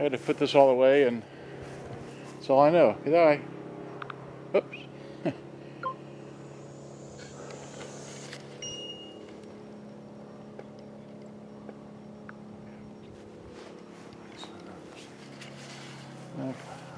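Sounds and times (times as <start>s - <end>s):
low mechanical hum: 0.0s - 16.9s
short high beep: 5.8s - 6.0s, 8.6s - 10.4s.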